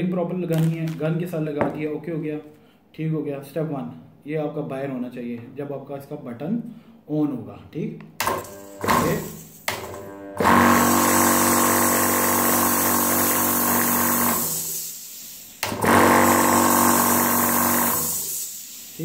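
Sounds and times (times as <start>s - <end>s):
air compressor motor humming: 8.2s - 14.8s, 15.6s - 19.0s.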